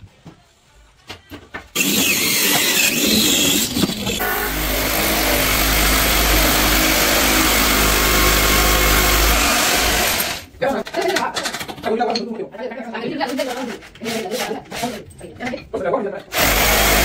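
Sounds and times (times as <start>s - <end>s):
electric power tool motor running: 1.8s - 10.5s, 16.3s - 17.0s.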